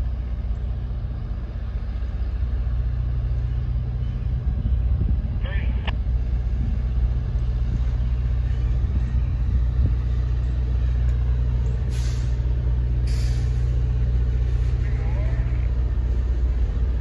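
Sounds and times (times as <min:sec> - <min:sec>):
diesel locomotive rumble: 0:00.0 - 0:17.0
air hissing: 0:11.9 - 0:13.8.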